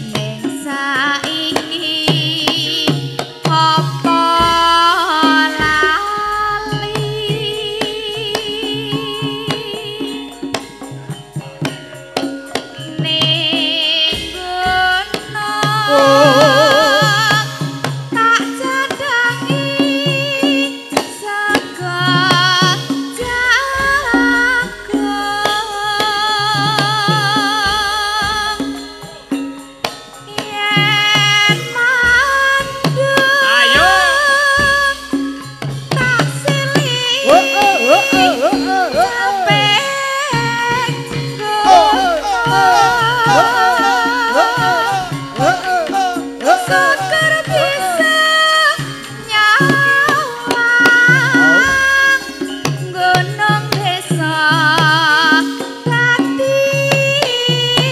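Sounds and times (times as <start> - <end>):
woman singing: 0.0 - 10.6, 12.8 - 29.3, 30.2 - 57.9
gamelan ensemble playing: 0.0 - 57.6
drum strokes: 0.0 - 57.9
pitched percussion: 0.0 - 57.9
woman singing a wavering note: 15.9 - 17.1, 36.7 - 45.5.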